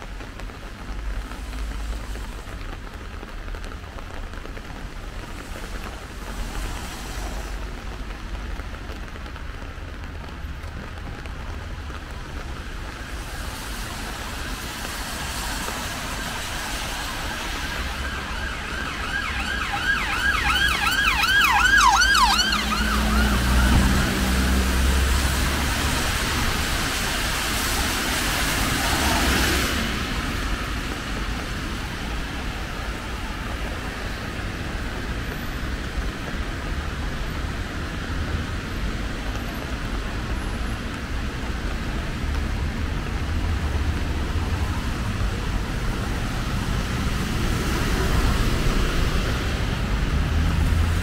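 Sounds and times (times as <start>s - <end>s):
rain falling on street: 0.0s - 51.0s
passing vehicle rumble: 12.1s - 51.0s
emergency siren wailing: 12.6s - 35.0s.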